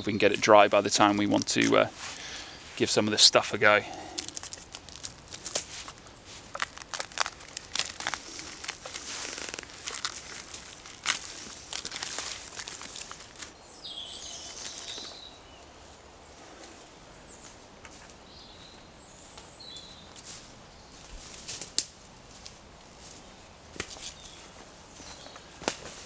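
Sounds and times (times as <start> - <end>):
moss tearing and rustling: 3.9 - 13.6
footsteps crunching on dry leaves: 4.0 - 15.3.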